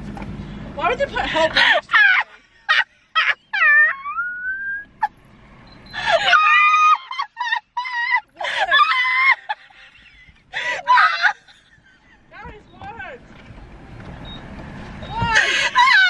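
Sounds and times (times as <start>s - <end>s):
women laughing hysterically: 1.3s - 5.1s, 6.0s - 12.3s, 15.2s - 16.0s.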